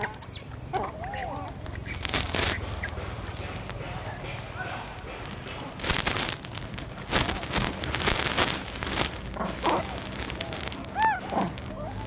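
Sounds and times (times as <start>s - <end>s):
high monkey squeaks: 0.0s - 3.0s, 10.9s - 12.0s
monkey crunching apple: 0.0s - 3.8s, 7.2s - 12.0s.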